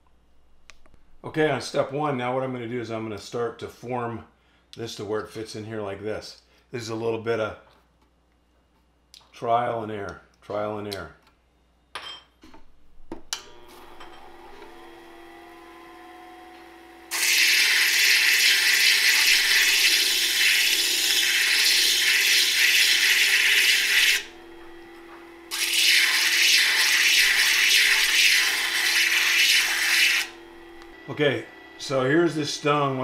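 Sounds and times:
grinder motor hum: 13.3s - 33.0s
stone grinding on abrasive disc: 17.1s - 24.4s, 25.5s - 30.4s.

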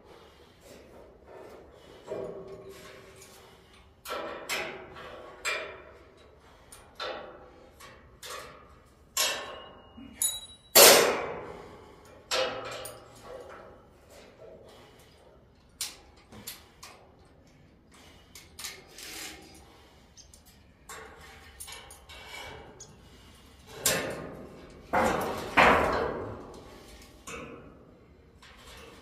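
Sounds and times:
metal clanks and knocks: 4.1s - 11.5s, 12.3s - 13.8s, 23.7s - 27.8s.

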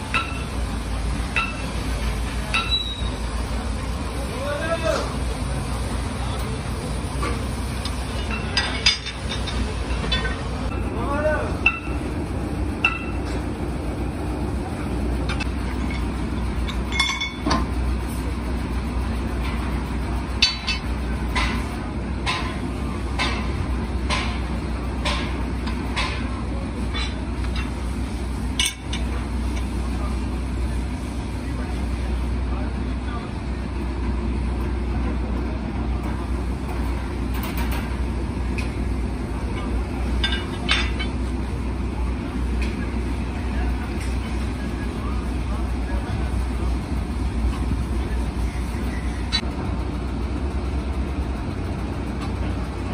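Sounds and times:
low machine hum: 0.0s - 52.9s.

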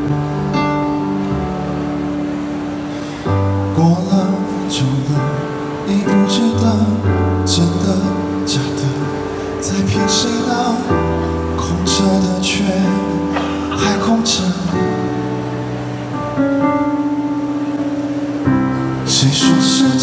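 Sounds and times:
band accompaniment with bass: 0.0s - 20.0s
man singing pop ballad: 3.5s - 15.6s, 19.0s - 20.0s.

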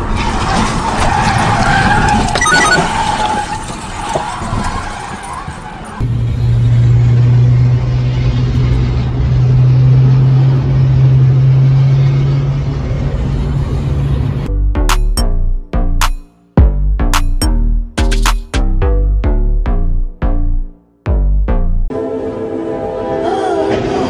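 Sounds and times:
dashcam road noise: 0.0s - 14.5s
car cabin highway drone: 0.0s - 17.4s
faint tyre squeal: 0.2s - 6.0s.

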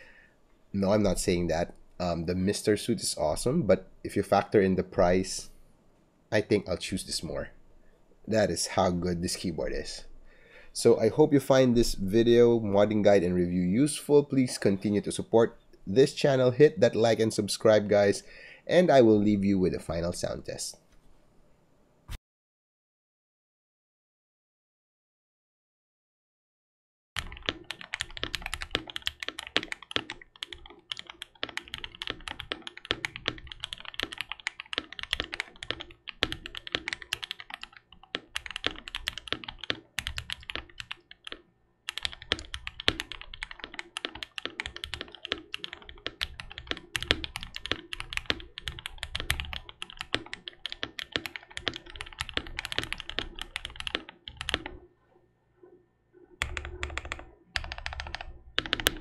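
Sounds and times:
fast mechanical keyboard typing: 27.2s - 54.8s, 56.4s - 59.0s.

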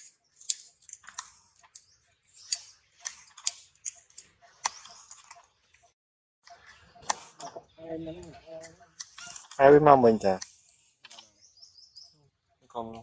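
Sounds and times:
sharp clicks and crackles: 0.0s - 5.9s, 8.6s - 9.6s.

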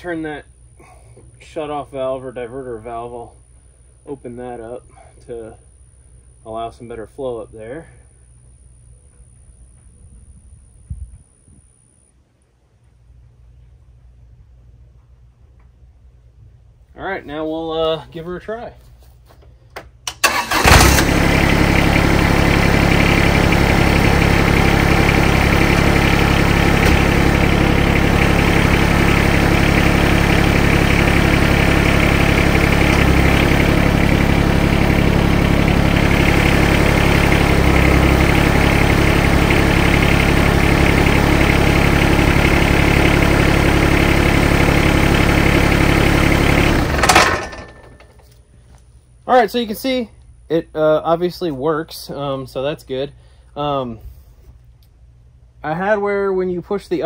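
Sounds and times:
diesel tractor engine running: 20.0s - 48.4s.

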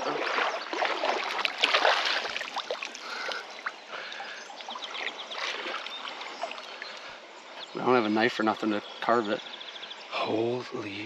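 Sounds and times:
fish thrashing in water: 0.0s - 3.5s
shallow river water: 0.0s - 11.0s.

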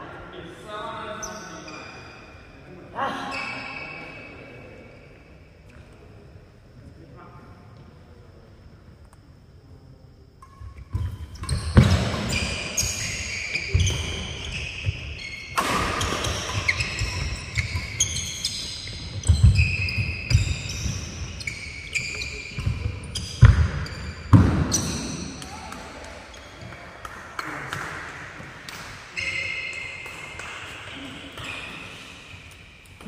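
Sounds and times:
rackets hitting shuttlecock: 10.4s - 14.3s, 14.9s - 21.2s
shoes squeaking on floor: 10.9s - 25.2s, 29.1s - 30.3s.

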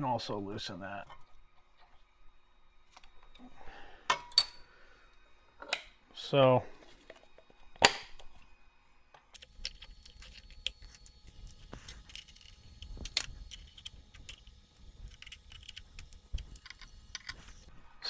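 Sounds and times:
wrench and nut clinking: 15.1s - 17.4s.

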